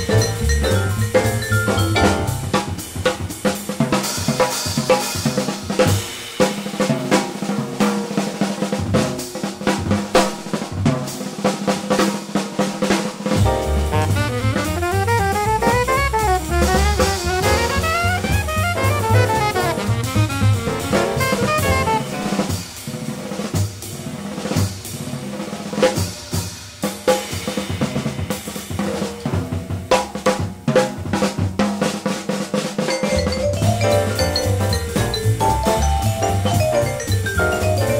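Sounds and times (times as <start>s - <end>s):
upright bass: 0.0s - 2.8s, 13.4s - 22.4s, 33.2s - 37.9s
drum kit playing: 0.0s - 37.9s
alto saxophone: 13.4s - 22.7s.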